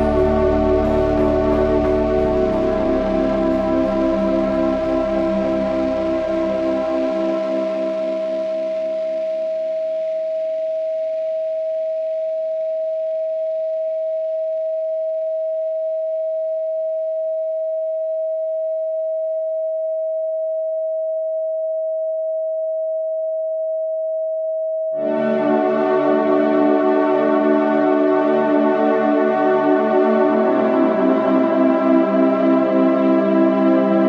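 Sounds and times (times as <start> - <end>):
ambient music: 0.0 - 9.7, 25.0 - 34.0
steady sine tone: 0.0 - 34.0.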